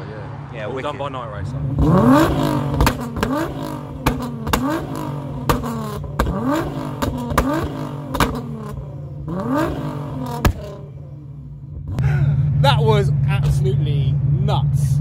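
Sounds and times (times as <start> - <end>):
car engine revving: 0.0 - 15.0
exhaust cracks and pops: 2.7 - 8.8, 9.6 - 10.8.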